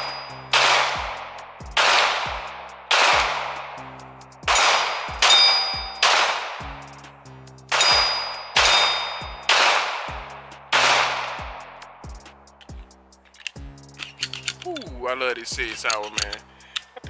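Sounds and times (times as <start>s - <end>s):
steel target ringing: 0.0s - 0.8s, 4.5s - 6.5s, 7.7s - 9.7s
pistol shots echoing: 0.0s - 3.8s, 4.5s - 6.8s, 7.7s - 11.8s.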